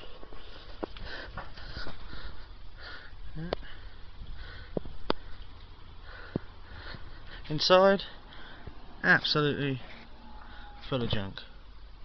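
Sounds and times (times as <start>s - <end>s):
low steady rumble: 0.0s - 12.0s
close breathing: 0.3s - 9.0s.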